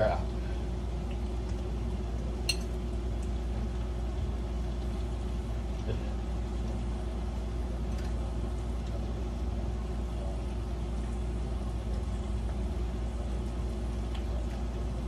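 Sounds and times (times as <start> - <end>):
spoon tapping: 2.5 - 2.7.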